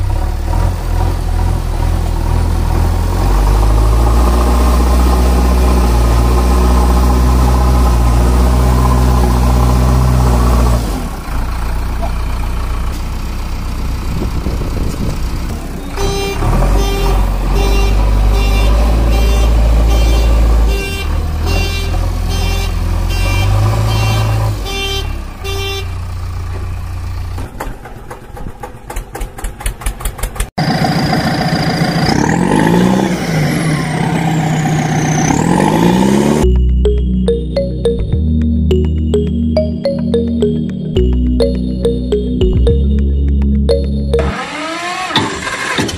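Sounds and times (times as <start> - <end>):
low engine hum: 0.0 - 32.1
evenly spaced beeps: 35.8 - 44.6.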